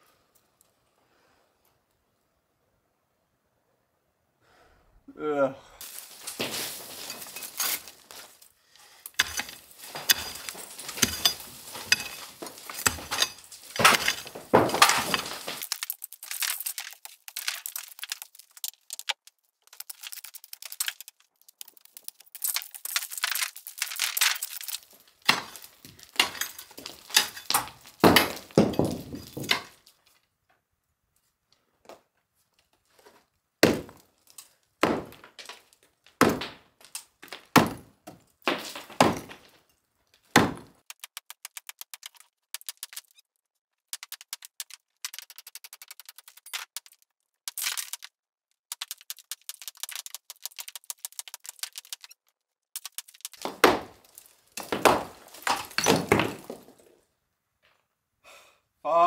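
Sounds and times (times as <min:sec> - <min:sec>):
rubble clinking and clattering: 0:05.8 - 0:30.3, 0:43.9 - 0:57.8.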